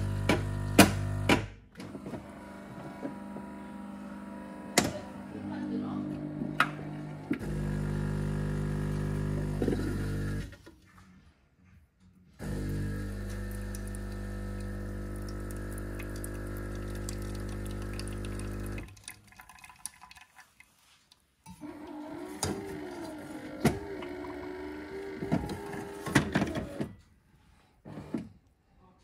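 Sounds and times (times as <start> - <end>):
coffee machine pump humming: 0.0 - 10.5, 12.4 - 19.7, 21.5 - 26.8
coffee dripping: 13.1 - 21.0.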